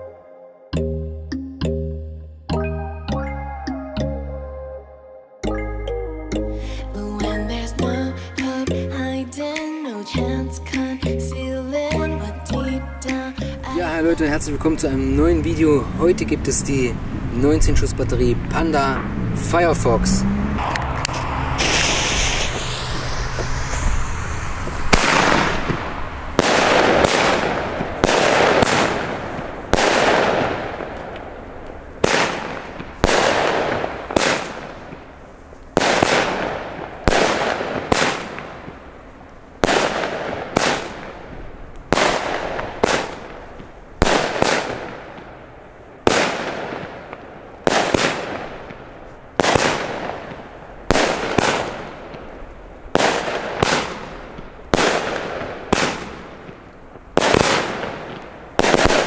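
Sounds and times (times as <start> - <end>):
firework shots banging: 20.6 - 24.0, 24.6 - 38.9, 39.6 - 59.0.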